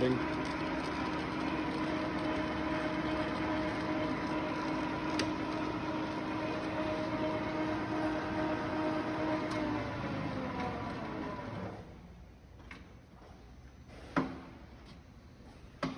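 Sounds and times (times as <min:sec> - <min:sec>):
lathe running with whine: 0:00.0 - 0:11.9.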